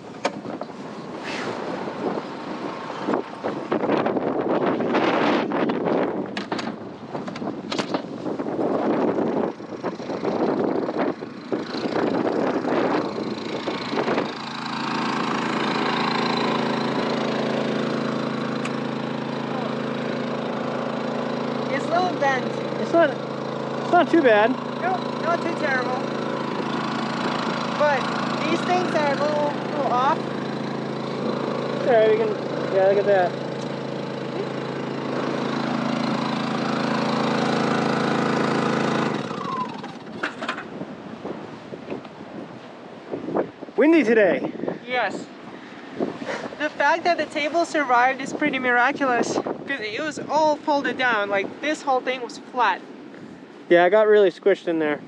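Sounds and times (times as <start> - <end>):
wind gusting on microphone: 0.0 - 55.0
portable generator running: 8.6 - 41.1.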